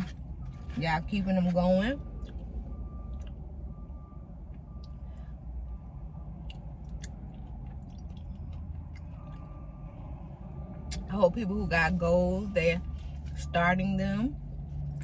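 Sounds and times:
low hum inside car: 0.0 - 15.0
mouth chewing food: 6.4 - 9.6.

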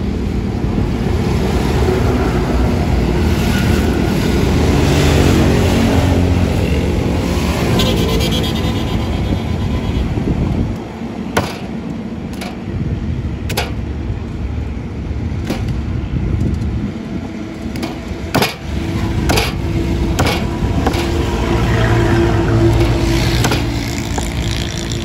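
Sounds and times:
steady low rumble: 9.7 - 25.0
sharp knocks: 11.4 - 12.6, 13.5 - 13.8, 15.4 - 15.8, 17.7 - 18.7, 19.3 - 21.3, 22.8 - 24.6.

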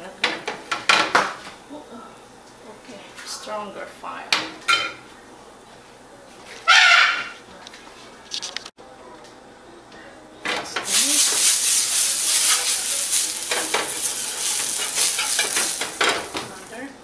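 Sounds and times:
butter sizzling in a pan: 10.8 - 16.9
spoon scraping a pan: 10.9 - 16.7.

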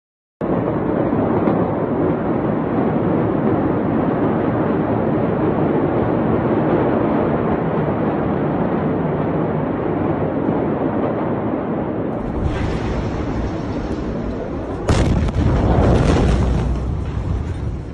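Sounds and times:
loud rushing noise: 12.1 - 17.9.

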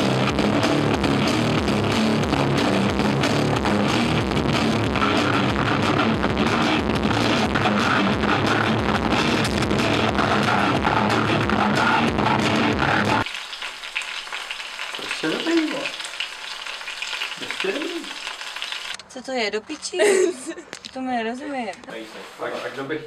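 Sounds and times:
loud live rock music: 0.0 - 13.3
food sizzling in a frying pan: 12.8 - 19.0.

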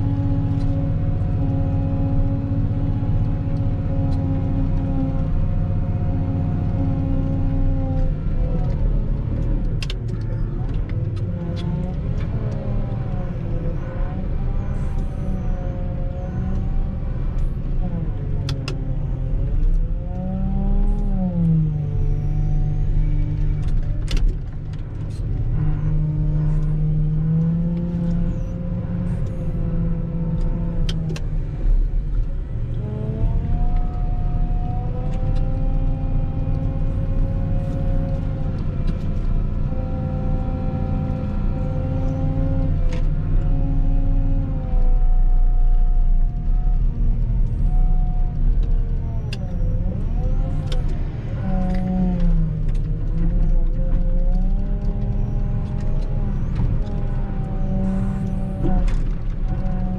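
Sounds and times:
diesel engine revving: 0.0 - 59.9.

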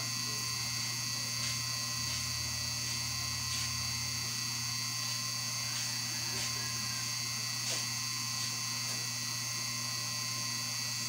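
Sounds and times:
electrical hum: 0.0 - 11.0
high-pitched whine: 0.0 - 11.0.

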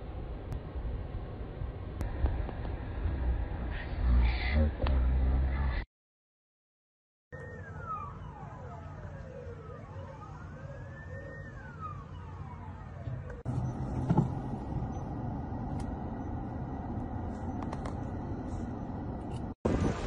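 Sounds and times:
outdoor rumble: 0.0 - 5.8, 11.6 - 20.0
emergency sirens wailing: 7.3 - 19.1.

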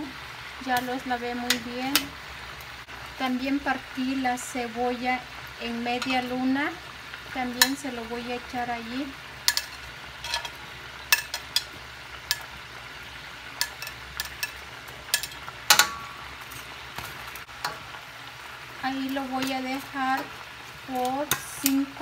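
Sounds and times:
meat sizzling in a pan: 0.0 - 22.0
metal tongs clattering: 9.5 - 11.7, 12.3 - 12.5, 13.6 - 17.9.

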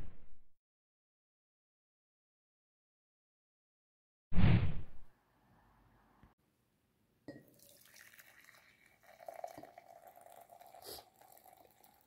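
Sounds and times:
liquid pouring into a mug: 7.3 - 12.0.

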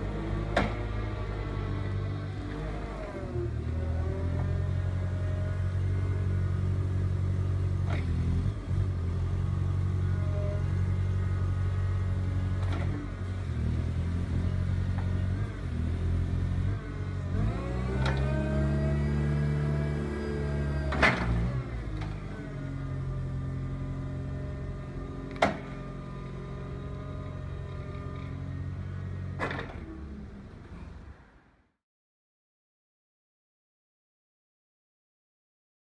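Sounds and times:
forklift engine running: 0.0 - 31.3
short clunks: 0.5 - 1.0, 20.9 - 22.2, 25.3 - 25.9, 29.4 - 29.9.

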